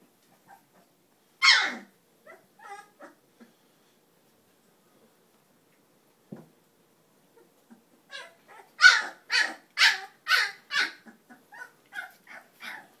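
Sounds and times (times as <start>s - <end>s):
high-pitched dog yelps: 1.4s - 3.1s, 8.1s - 13.0s.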